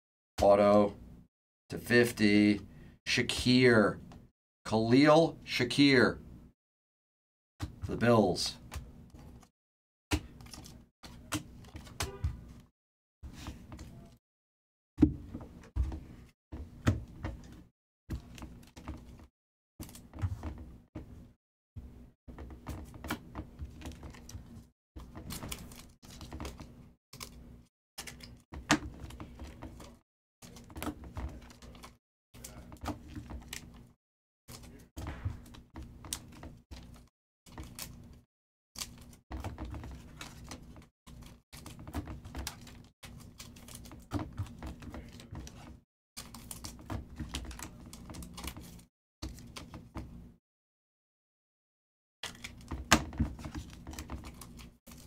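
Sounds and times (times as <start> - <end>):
trading cards clicking and snapping: 28.0 - 29.0.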